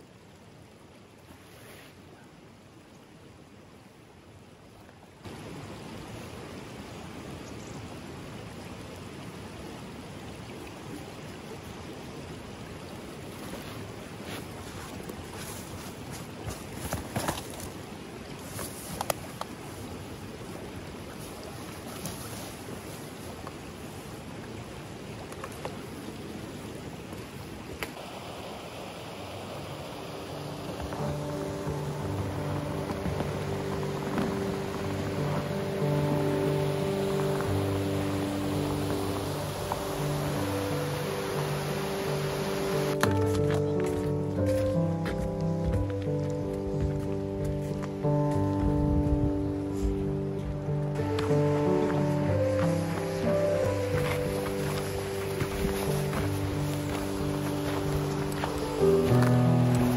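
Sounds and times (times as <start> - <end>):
stream running over rocks: 0.0 - 59.9
faint rustles: 43.2 - 59.9.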